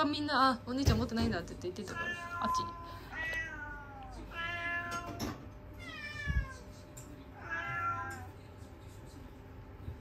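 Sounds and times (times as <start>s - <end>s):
cats meowing: 1.8s - 8.5s.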